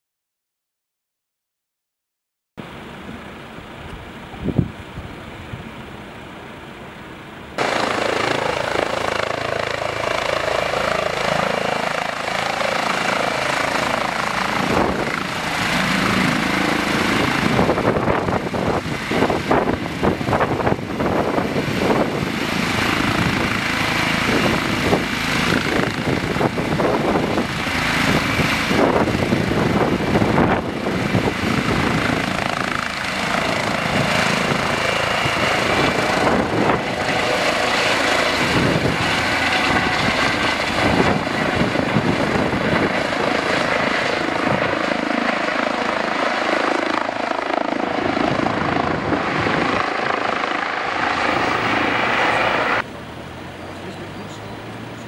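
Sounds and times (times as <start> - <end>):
helicopter rotor and turbine: 7.5 - 54.2.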